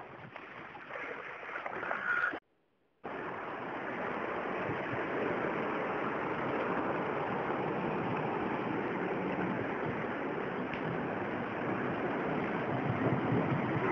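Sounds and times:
water rushing and sloshing: 0.0 - 2.4, 3.0 - 13.9.

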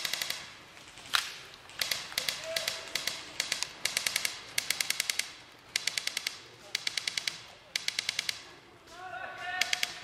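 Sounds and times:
airsoft guns firing bursts: 0.0 - 0.5, 1.8 - 8.5, 9.4 - 10.0
sharp crack: 0.0 - 10.0.

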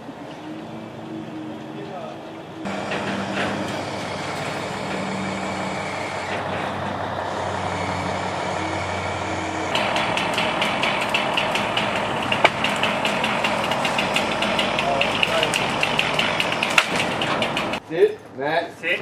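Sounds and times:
truck engine running: 0.0 - 17.8
fast even rattle: 9.7 - 17.8.

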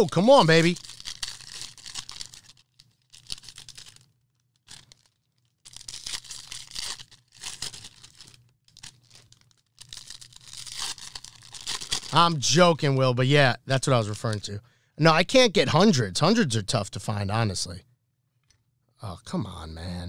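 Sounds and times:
wrappers tearing and crinkling: 0.0 - 12.4.

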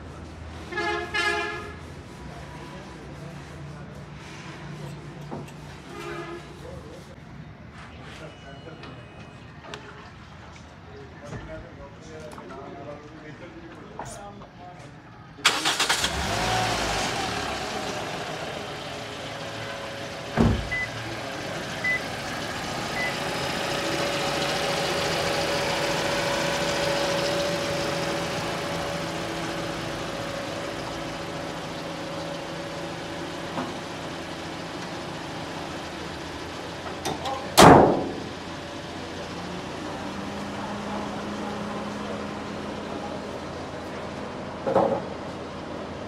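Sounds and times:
car engine starting and idling: 15.4 - 46.0
car bonnet slammed shut: 20.4 - 20.7, 37.6 - 38.3
thump: 20.4 - 20.7, 37.6 - 38.2.

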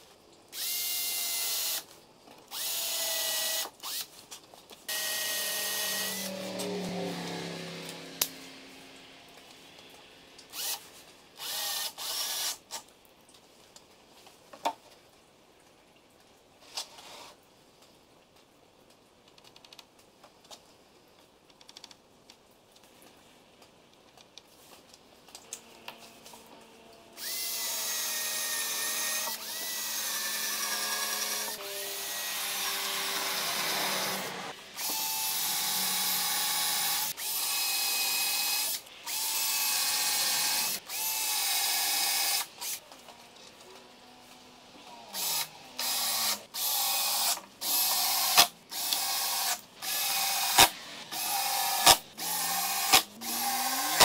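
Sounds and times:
cordless drill whining: 0.6 - 1.9, 2.5 - 4.1, 4.9 - 8.4, 10.5 - 12.6, 25.6 - 42.8, 45.2 - 54.0.

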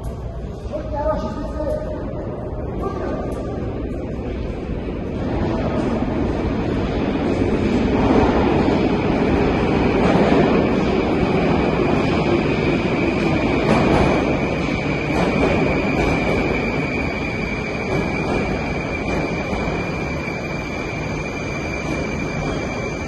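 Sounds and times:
high-pitched whine: 0.0 - 23.0.

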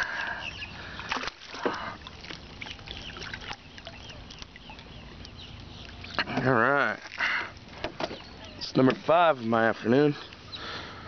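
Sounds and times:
fish thrashing and splashing: 0.0 - 8.3
birds chirping: 0.0 - 11.0.

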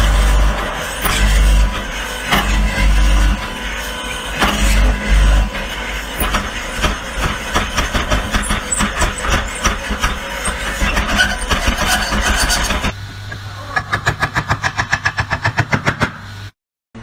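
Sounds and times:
mortising machine cutting wood: 0.0 - 13.0
pulsing machine hum: 0.0 - 15.5.

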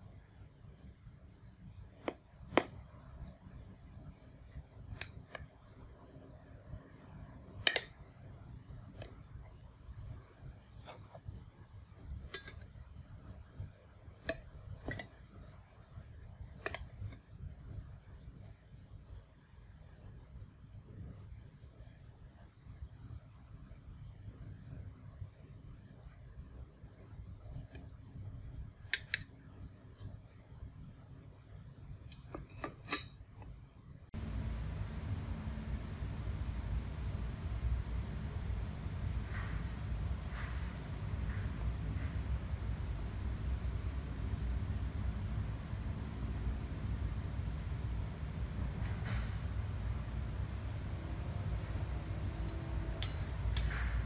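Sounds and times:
low background rumble: 34.1 - 54.0.

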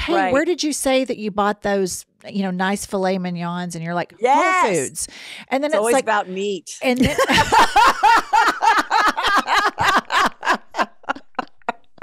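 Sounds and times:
breathy gasps: 5.1 - 5.5
woman laughing hard: 7.0 - 12.0.

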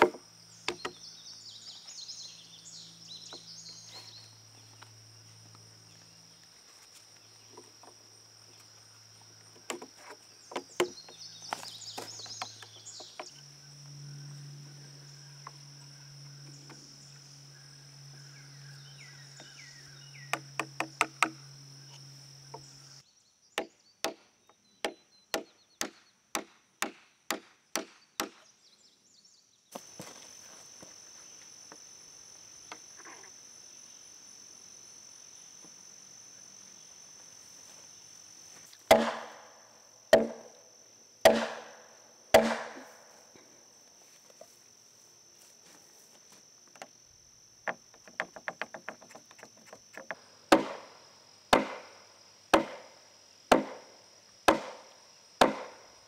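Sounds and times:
steady high hum: 0.0 - 23.2, 29.8 - 56.0
heavy knocks on wooden wedge: 40.1 - 40.4.

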